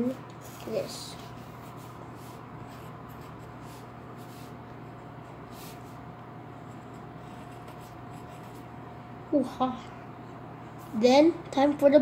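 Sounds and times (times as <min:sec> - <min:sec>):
steady low hum: 0:00.0 - 0:12.0
pencil scratching on paper: 0:00.4 - 0:06.0, 0:06.6 - 0:08.8.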